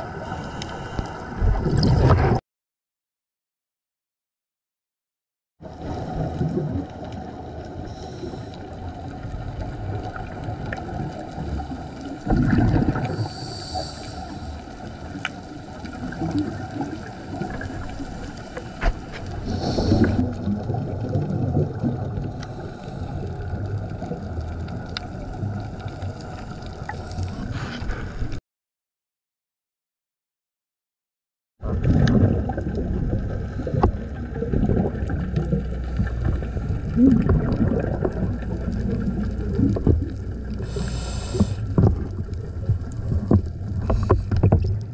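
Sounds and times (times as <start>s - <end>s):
low underwater rumbling wash: 5.6s - 28.4s, 31.6s - 44.9s
scuba diver exhalation bubbles: 12.2s - 13.6s, 19.3s - 22.6s, 31.6s - 42.3s.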